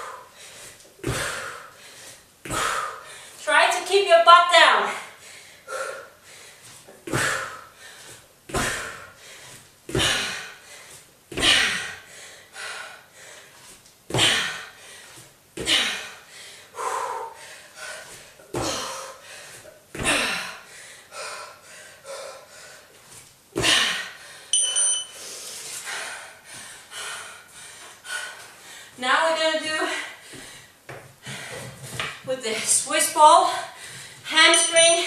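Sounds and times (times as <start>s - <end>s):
short electronic beep: 24.6s - 25.1s.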